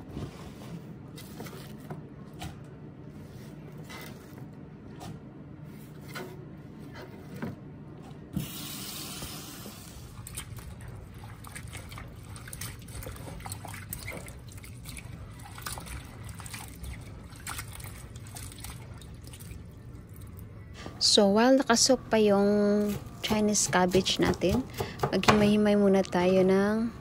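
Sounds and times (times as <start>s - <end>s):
water splashing in a bowl: 10.1s - 20.4s.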